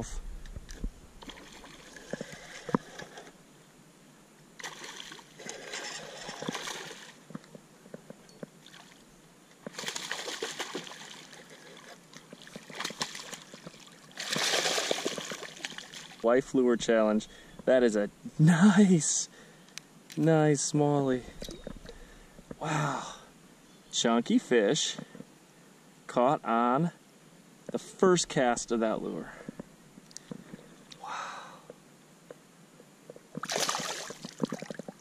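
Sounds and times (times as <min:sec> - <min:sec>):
fish splashing and thrashing in water: 0:00.4 - 0:03.2, 0:04.6 - 0:07.2, 0:09.6 - 0:16.2, 0:33.4 - 0:35.0.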